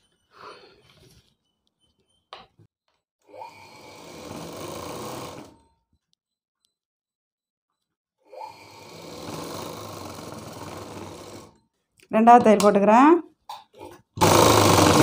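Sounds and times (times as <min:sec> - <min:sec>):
sewing machine stitching: 0:03.4 - 0:05.6, 0:08.3 - 0:11.6, 0:14.2 - 0:15.0.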